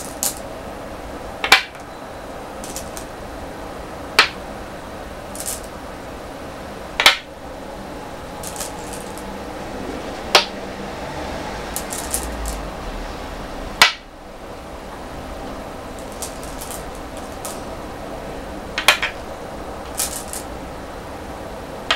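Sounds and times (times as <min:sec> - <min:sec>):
stones clattering in bowls: 0:00.0 - 0:00.4, 0:02.6 - 0:03.1, 0:05.3 - 0:05.7, 0:08.4 - 0:09.3, 0:11.7 - 0:12.7, 0:16.0 - 0:17.7, 0:18.8 - 0:19.2, 0:19.9 - 0:20.5
stones clicking on wooden board: 0:00.0 - 0:00.4, 0:01.4 - 0:01.8, 0:02.6 - 0:03.1, 0:05.4 - 0:05.7, 0:07.0 - 0:07.3, 0:08.4 - 0:09.3, 0:11.7 - 0:12.6, 0:13.8 - 0:14.0, 0:16.0 - 0:17.7, 0:18.8 - 0:19.2, 0:19.9 - 0:20.5.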